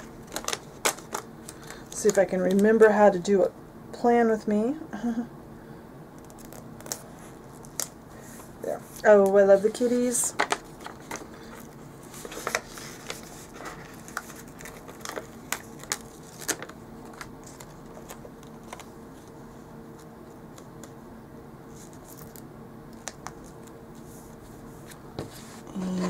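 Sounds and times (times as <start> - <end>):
paper crinkling and scraping: 0.0 - 2.7, 6.2 - 19.5
faint steady hum: 0.0 - 26.0.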